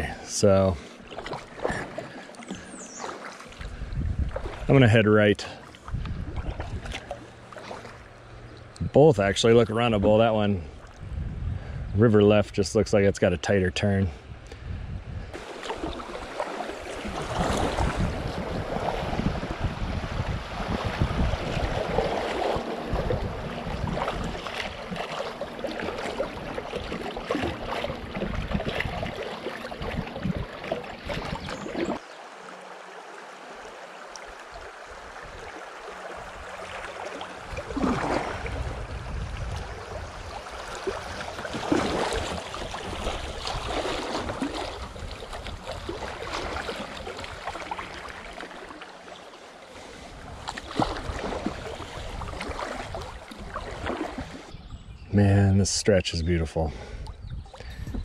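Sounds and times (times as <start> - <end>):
paddle strokes splashing: 0.8 - 8.7, 15.3 - 54.6
wind on microphone: 3.6 - 4.8, 5.8 - 7.1, 8.8 - 12.9, 14.1 - 16.3, 16.9 - 32.0, 37.4 - 47.7, 50.0 - 55.2, 56.6 - 58.0
river water rushing: 15.4 - 19.8, 20.4 - 38.9, 39.6 - 54.5.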